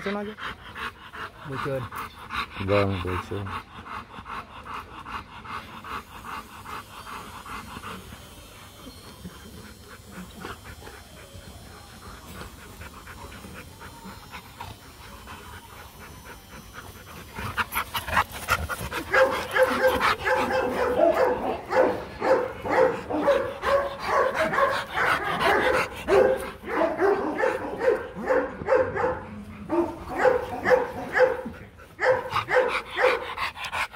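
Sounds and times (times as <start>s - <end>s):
dogs panting: 0.0s - 33.9s
dog barking and yipping: 17.6s - 33.4s.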